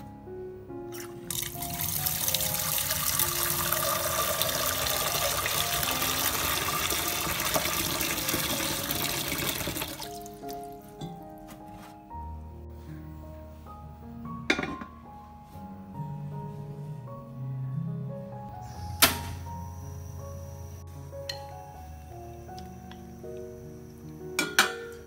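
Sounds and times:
background music: 0.0 - 25.0
tap water pouring into a metal pot: 1.0 - 10.7.

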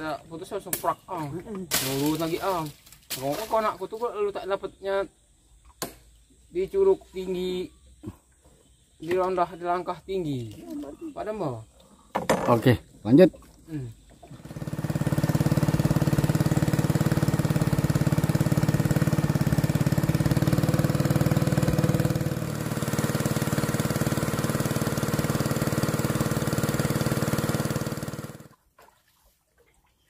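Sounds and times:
small boat engine running: 13.4 - 28.6.

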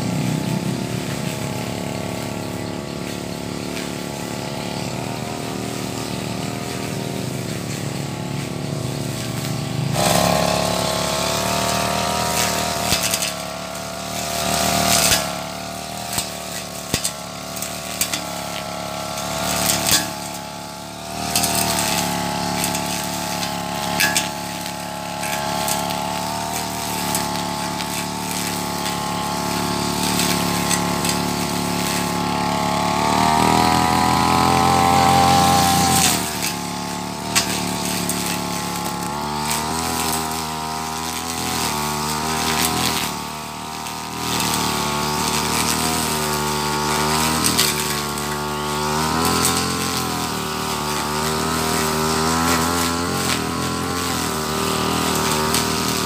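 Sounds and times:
brush cutter engine cutting grass: 0.0 - 56.0.

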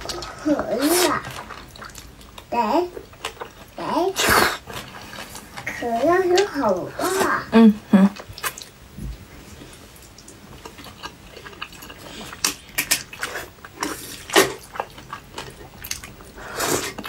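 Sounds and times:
slurping noodles: 0.0 - 2.0, 4.1 - 5.9, 16.3 - 17.0
chewing: 0.0 - 7.2, 8.1 - 8.8, 9.5 - 17.0.

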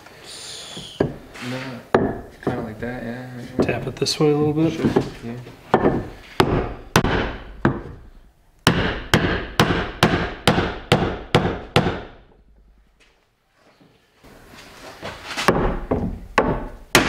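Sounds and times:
hammer striking boat hull: 5.8 - 8.0, 8.7 - 12.2.

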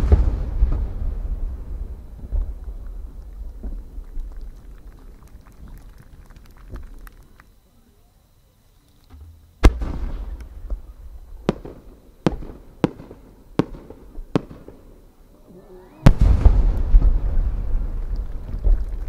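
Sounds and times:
firework launch thump: 0.0 - 2.7, 9.1 - 10.8, 16.0 - 19.0
firework burst boom and rumble: 0.0 - 7.2, 9.6 - 15.2, 16.0 - 19.0.

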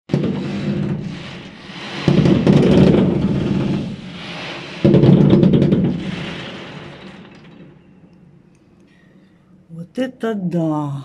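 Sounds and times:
fireworks booming and crackling: 0.1 - 7.9.

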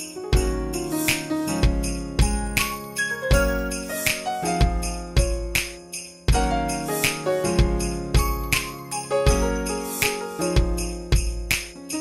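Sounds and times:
jingling bells: 0.0 - 12.0
upbeat christmas-style song: 0.0 - 12.0.

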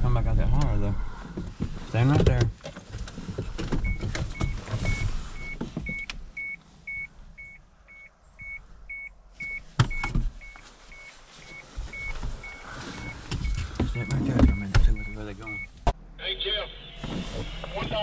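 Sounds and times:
door-open warning chime beeping: 3.8 - 15.7.

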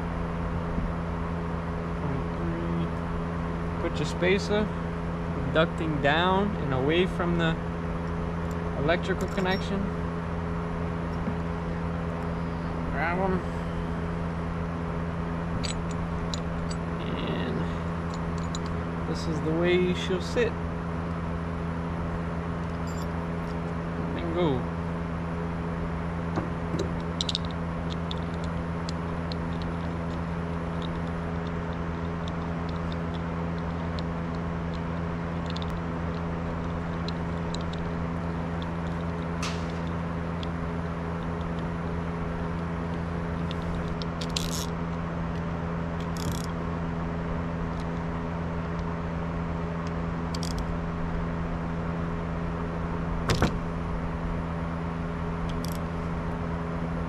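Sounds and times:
low machine hum: 0.0 - 57.0
small metal parts clinking: 8.5 - 9.9, 15.6 - 18.8, 22.6 - 23.8, 26.8 - 40.6, 42.5 - 44.8, 46.0 - 46.5, 50.3 - 50.7, 55.5 - 55.8.

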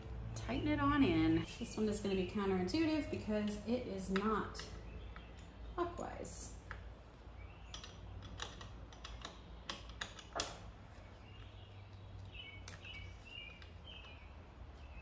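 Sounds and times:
bird chirping: 4.6 - 6.3, 7.2 - 8.6, 9.3 - 15.0.

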